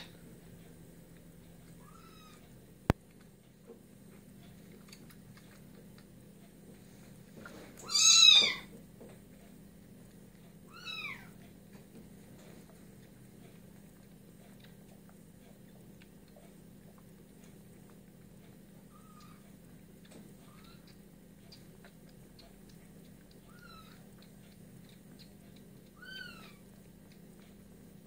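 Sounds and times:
kitten meowing: 0:01.8 - 0:02.4, 0:07.8 - 0:08.7, 0:10.7 - 0:11.3, 0:23.5 - 0:24.0, 0:26.0 - 0:26.6.

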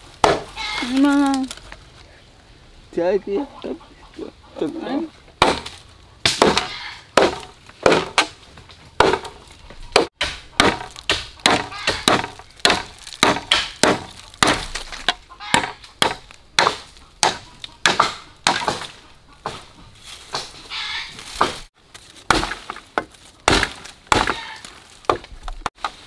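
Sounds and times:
knife chopping: 0:10.0 - 0:14.8.

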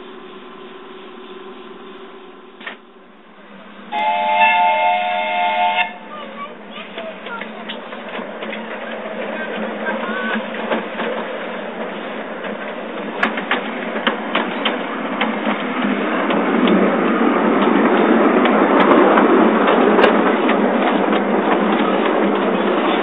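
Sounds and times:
miniature train rolling past: 0:03.4 - 0:23.0
wheels clicking over rail joints: 0:06.0 - 0:23.0.

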